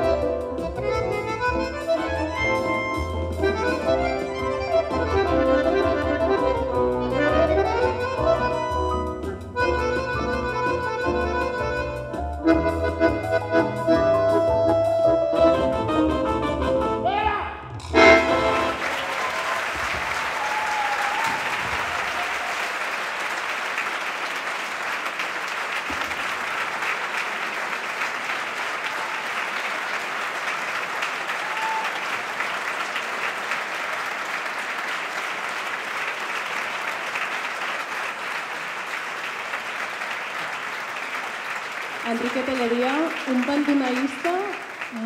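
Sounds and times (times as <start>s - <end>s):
audience applauding: 17.9s - 45.0s.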